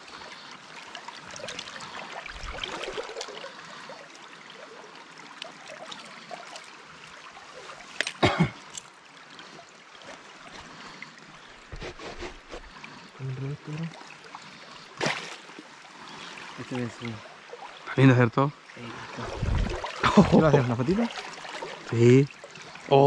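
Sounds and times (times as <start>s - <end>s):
water splashing: 0.0s - 3.8s, 9.4s - 23.0s
stream water trickling: 0.0s - 23.0s.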